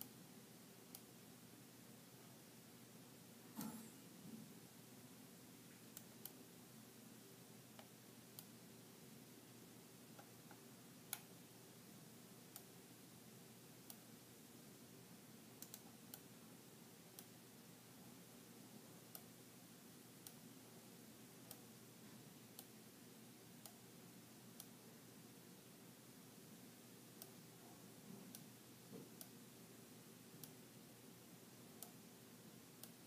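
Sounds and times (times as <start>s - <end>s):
low steady hum: 0.0s - 33.0s
computer mouse clicks: 10.2s - 11.3s, 15.6s - 16.3s, 23.6s - 23.8s.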